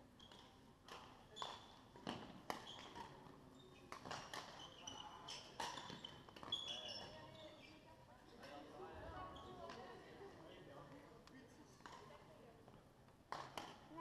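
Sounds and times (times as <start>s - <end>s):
shoes squeaking on floor: 2.5s - 7.9s
rackets striking shuttlecocks: 13.3s - 13.8s.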